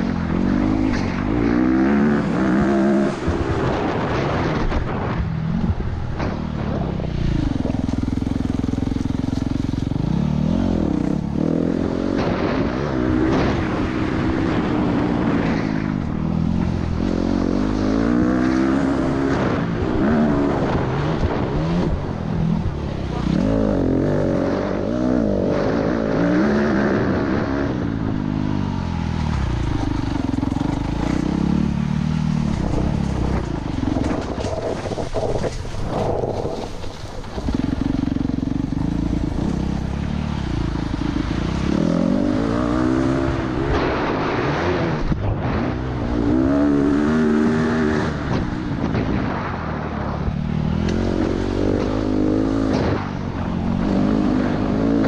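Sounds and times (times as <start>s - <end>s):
dirt bike engine revving: 0.0s - 5.0s, 7.1s - 55.0s
knocks and clatter from rough ground: 2.6s - 10.0s, 29.2s - 40.2s.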